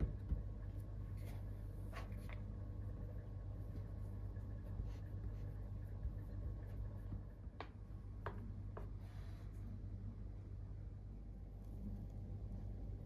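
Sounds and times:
hands pressing dough: 0.0 - 9.0
low steady hum: 0.0 - 13.0.

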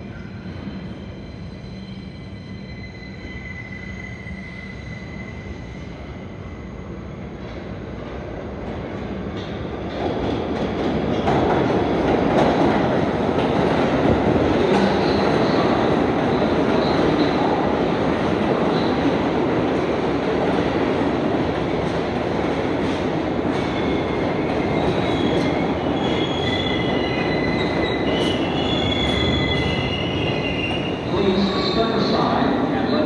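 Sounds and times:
subway train rumbling on rails: 0.0 - 33.0.

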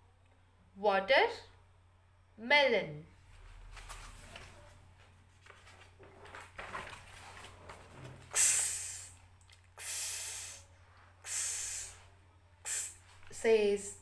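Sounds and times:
faint mains hum: 0.0 - 14.0
woman making hissing ks sounds: 8.3 - 14.0.

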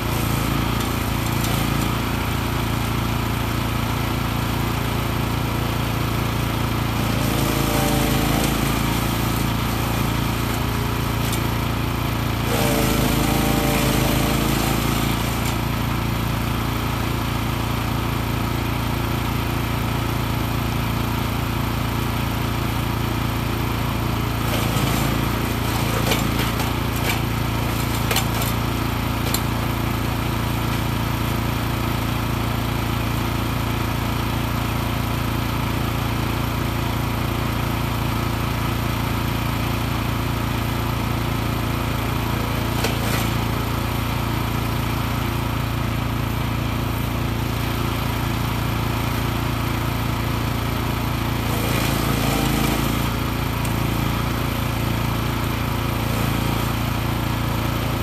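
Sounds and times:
wood chipper running: 0.0 - 58.0.

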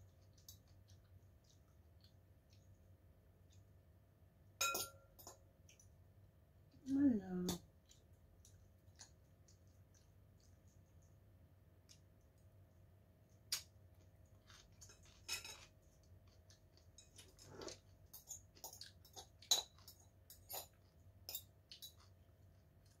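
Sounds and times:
fork clinking on ceramic bowl: 4.6 - 5.4, 18.1 - 22.1.

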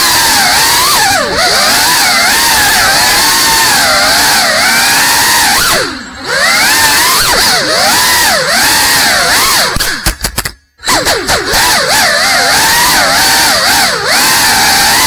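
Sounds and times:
drone motors and propellers whining: 0.0 - 10.1, 10.8 - 15.0.

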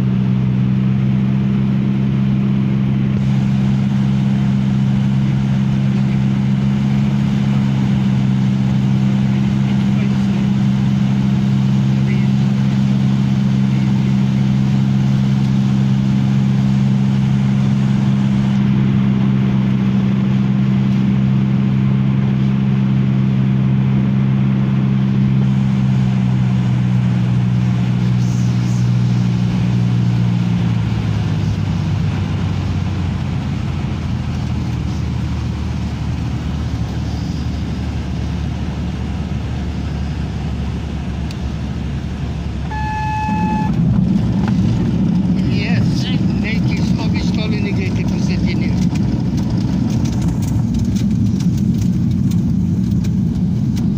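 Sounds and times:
aircraft engine and propeller droning: 0.0 - 53.9
short beep: 42.7 - 43.8.

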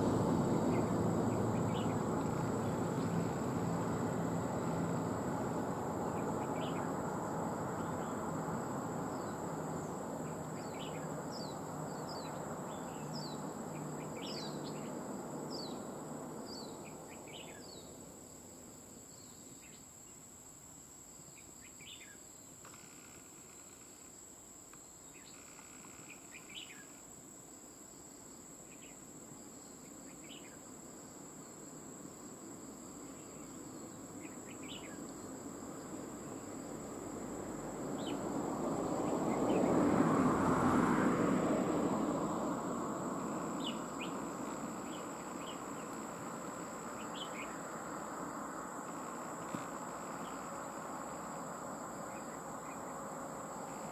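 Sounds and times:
bulbuls chirping: 43.3 - 46.1.

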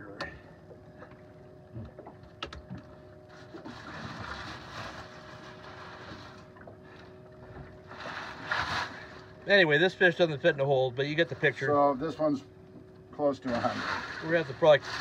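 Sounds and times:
faint steady hum: 0.0 - 15.0
ice slush crunching: 13.5 - 15.0.

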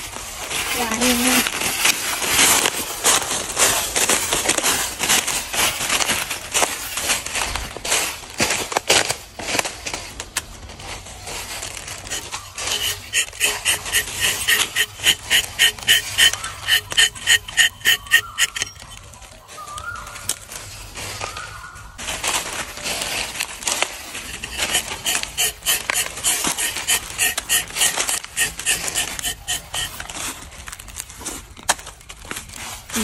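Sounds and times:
knife scraping tree bark: 0.4 - 6.8, 11.2 - 19.1, 23.0 - 31.0.

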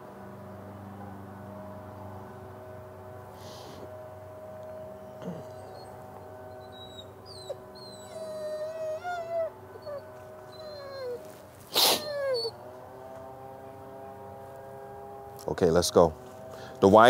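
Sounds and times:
dog whining: 5.0 - 12.6.

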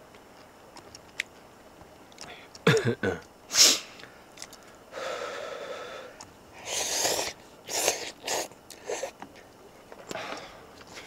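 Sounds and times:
noodles being slurped: 6.6 - 9.2.

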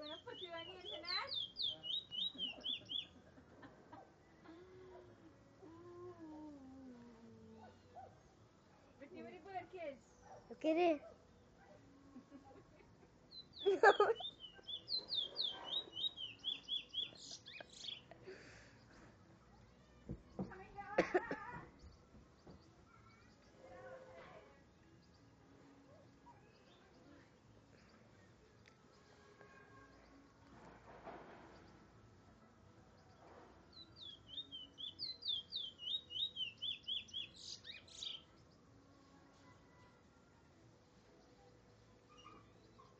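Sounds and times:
bird whistling song: 0.0 - 3.1, 13.3 - 18.1, 33.8 - 38.3.

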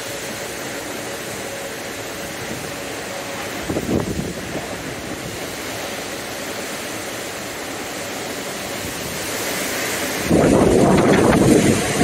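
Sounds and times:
rushing wind and rain: 0.0 - 12.0
wind buffeting microphone: 3.4 - 5.7, 8.7 - 12.0.

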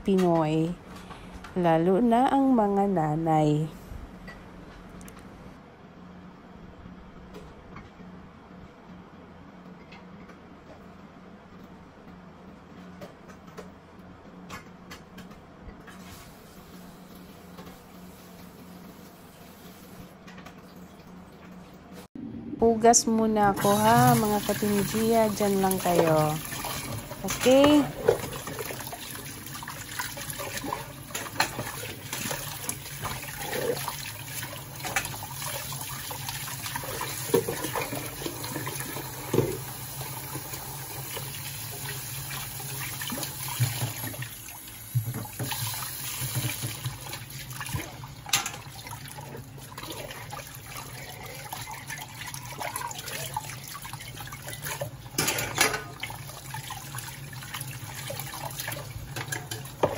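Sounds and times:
dishes clinking: 55.2 - 56.0.

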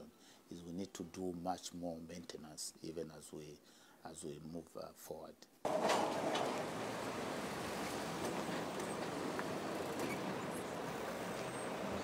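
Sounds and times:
faint low engine hum: 5.7 - 12.0
highway traffic rushing: 5.7 - 12.0.

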